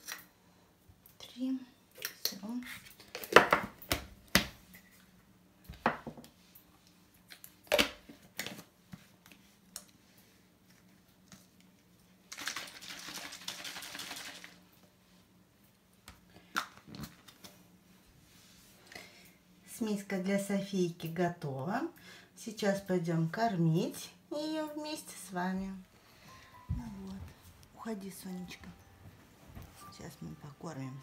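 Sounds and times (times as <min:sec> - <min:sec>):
faint low hum: 0:00.0 - 0:31.0
bottle and tin knocking on countertop: 0:05.8 - 0:06.3.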